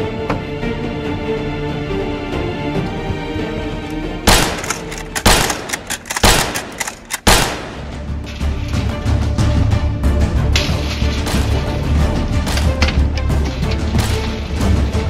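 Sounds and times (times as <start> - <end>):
background music: 0.0 - 15.0
gunshot-like bangs: 4.3 - 8.0.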